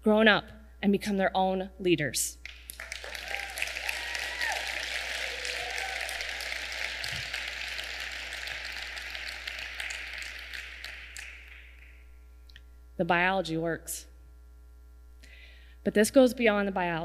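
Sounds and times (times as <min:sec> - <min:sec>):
audience applauding: 0:02.4 - 0:12.1
audience cheering: 0:02.5 - 0:12.0.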